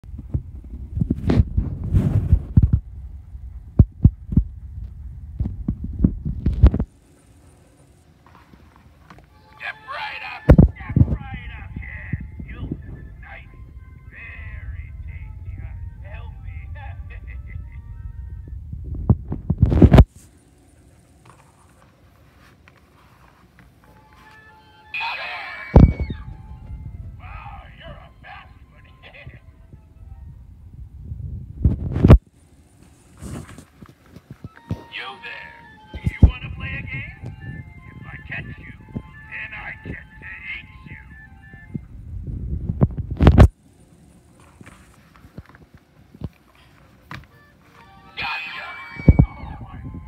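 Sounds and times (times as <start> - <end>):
camera handling rumbling and rubbing: 0.2 - 2.9, 3.8 - 6.9, 32.8 - 34.5
faint high whine: 0.2 - 50.0.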